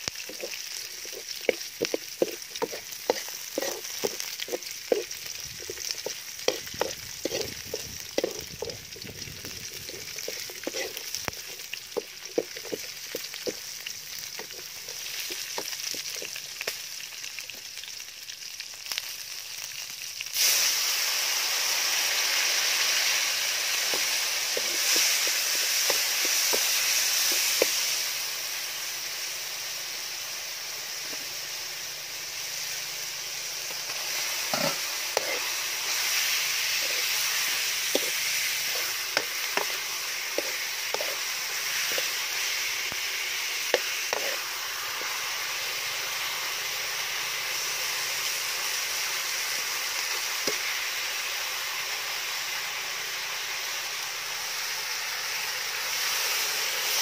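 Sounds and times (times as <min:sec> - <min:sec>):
food sizzling in oil: 0:00.0 - 0:57.0
metal spatula scraping a wok: 0:00.3 - 0:13.7, 0:14.3 - 0:16.4, 0:22.9 - 0:27.8, 0:34.0 - 0:42.7, 0:43.6 - 0:45.2.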